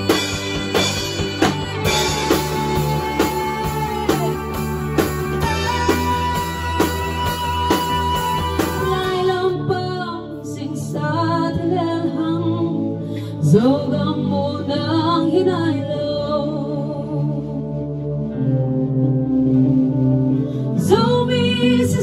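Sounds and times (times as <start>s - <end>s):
steady drum beat: 0.0s - 9.3s
bass guitar: 0.0s - 12.9s
woman singing: 0.0s - 17.7s, 20.8s - 22.0s
electric keyboard: 0.0s - 22.0s.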